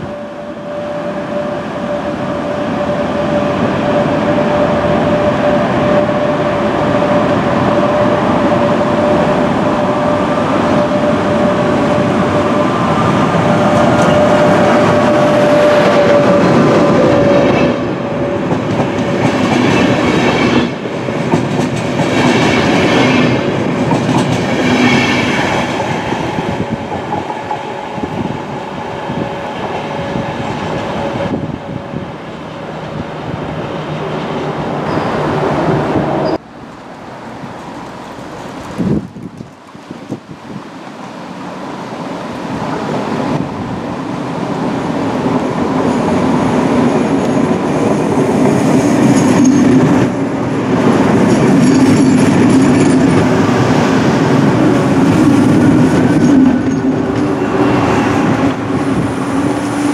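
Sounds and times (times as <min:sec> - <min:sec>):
electric locomotive whine: 0:00.0 - 0:59.9.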